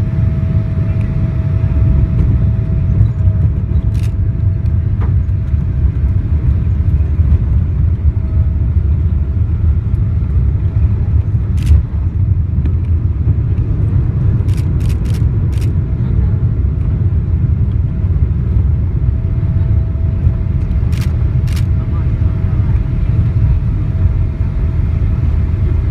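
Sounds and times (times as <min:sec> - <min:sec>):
aircraft rolling low rumble: 0:00.0 - 0:25.9
sharp clicks: 0:11.6 - 0:11.8, 0:14.5 - 0:15.7.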